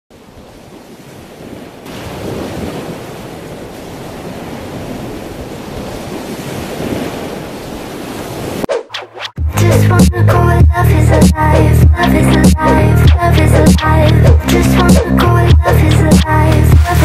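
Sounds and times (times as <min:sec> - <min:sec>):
whitewater rushing to shore: 0:00.2 - 0:08.7, 0:12.7 - 0:17.0
ocean wave breaking: 0:00.2 - 0:08.8.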